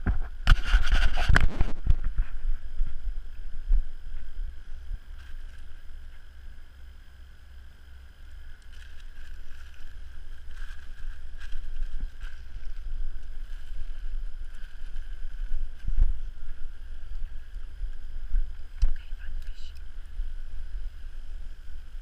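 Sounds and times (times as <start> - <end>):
wind buffeting microphone: 9.0 - 22.0.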